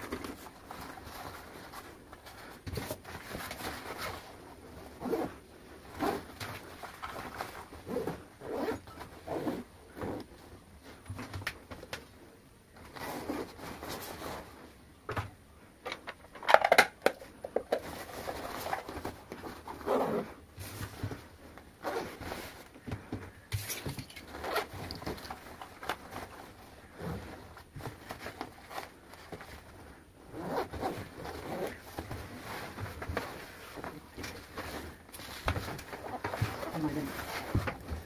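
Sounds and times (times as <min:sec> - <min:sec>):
zipper rasping: 0:04.9 - 0:06.4, 0:07.8 - 0:10.3, 0:17.9 - 0:20.4, 0:21.8 - 0:22.5, 0:24.3 - 0:25.0, 0:30.2 - 0:33.9
bag handling knocks and rustles: 0:30.4 - 0:38.0.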